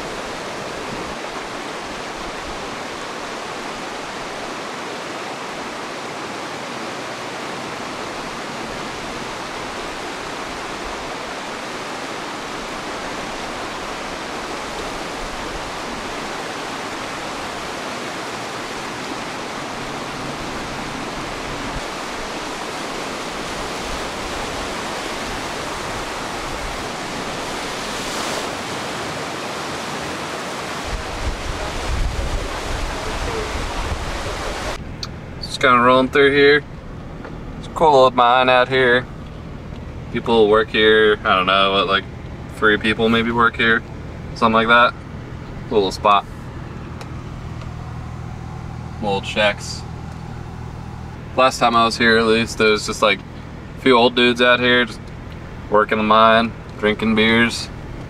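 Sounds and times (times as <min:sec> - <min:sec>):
steady rushing noise: 0:00.0 - 0:58.0
low rumbling bumps: 0:30.8 - 0:58.0.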